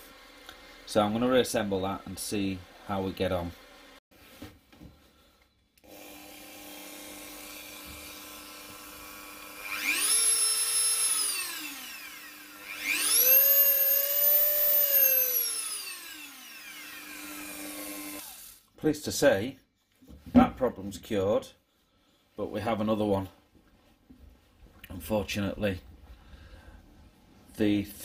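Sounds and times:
rotary tool motor humming: 5.8 - 18.6
rotary tool high whine: 5.8 - 18.7.

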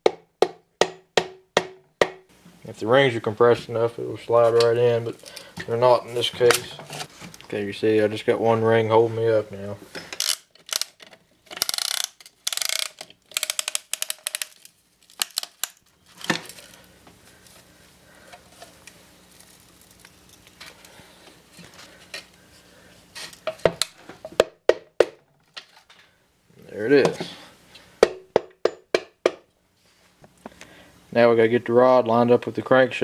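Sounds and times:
hammer handle tapping on metal: 0.0 - 2.2
fast metallic ratcheting clicks: 10.2 - 11.0, 11.6 - 14.6.

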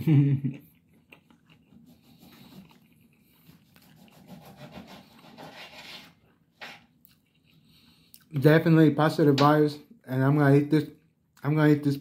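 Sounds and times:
person chewing: 0.5 - 5.3, 6.2 - 8.3
plastic fork scraping a plate: 3.8 - 6.9.

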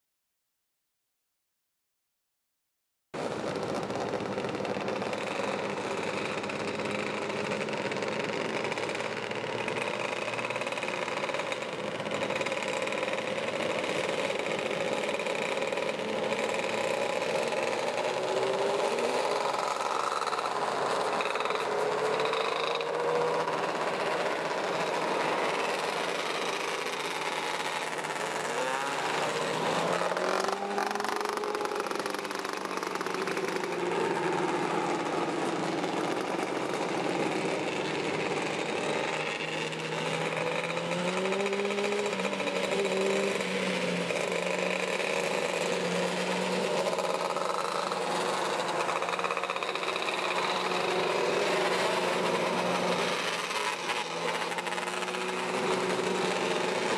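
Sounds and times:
racing car engines: 3.2 - 56.9.

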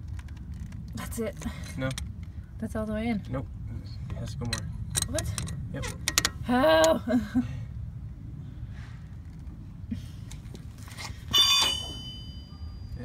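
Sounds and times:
metal tool clanking on metal: 11.3 - 12.6.

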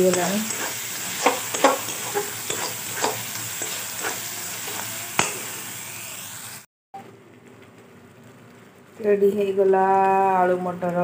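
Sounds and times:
steel spoon scraping pan: 0.0 - 5.8
spices sizzling in hot oil: 0.0 - 6.7.

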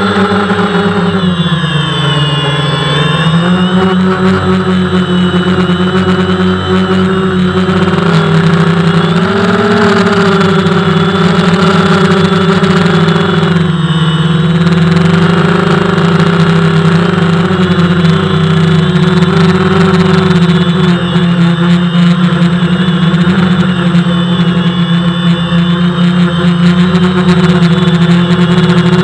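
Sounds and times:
quadcopter propellers buzzing: 0.0 - 29.0.

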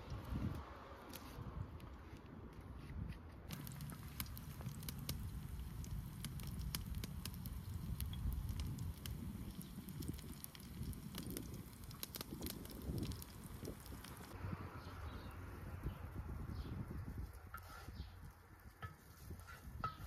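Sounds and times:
wood fire crackling: 0.0 - 2.0, 3.5 - 14.4
low steady rumble: 3.5 - 17.3.

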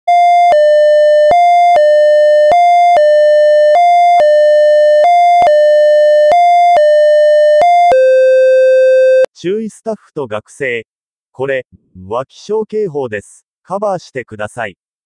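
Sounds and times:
two-tone electronic alert: 0.1 - 9.3.

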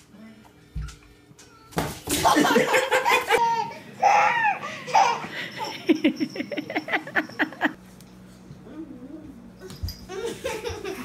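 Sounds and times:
people laughing: 2.2 - 3.9, 4.9 - 7.8, 10.1 - 11.0
small child laughing: 2.2 - 7.8, 10.1 - 11.0.

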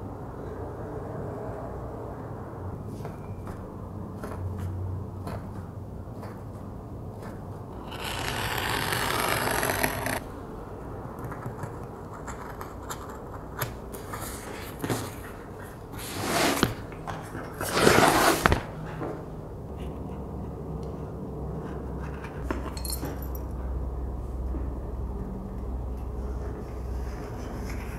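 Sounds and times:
awl scraping leather: 7.8 - 10.2, 16.0 - 16.8, 17.6 - 18.6.

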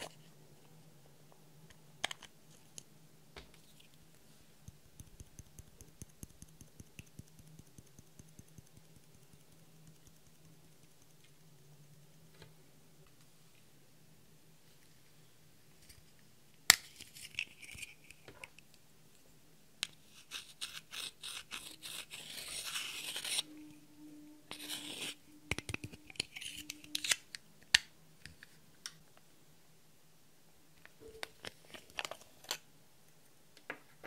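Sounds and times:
tool scraping powder: 20.1 - 23.7, 24.5 - 25.3.

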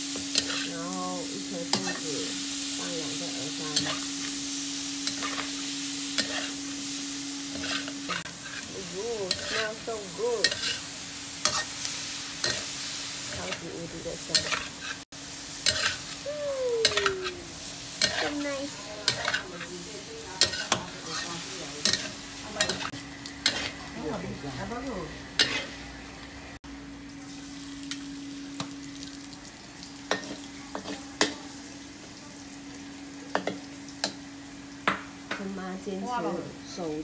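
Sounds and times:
food sizzling in a pan: 0.0 - 37.0
metal spatula scraping a pan: 0.3 - 0.8, 5.1 - 6.6, 7.5 - 12.7, 15.6 - 16.1, 18.0 - 19.8, 20.4 - 23.8, 25.4 - 25.8.

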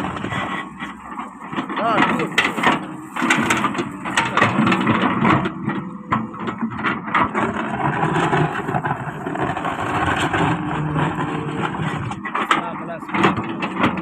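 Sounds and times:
bucket scraping stony soil: 0.0 - 14.0
excavator diesel engine: 0.0 - 14.0
rocks knocking against bucket: 0.0 - 14.0.

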